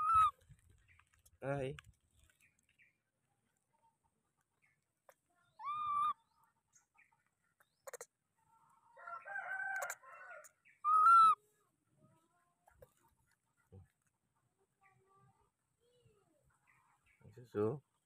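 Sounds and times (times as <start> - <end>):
baby monkey coo calls: 0.0 - 0.3, 5.6 - 6.3, 10.8 - 11.4
soft jumble of monkey calls: 5.4 - 6.6, 10.7 - 11.4.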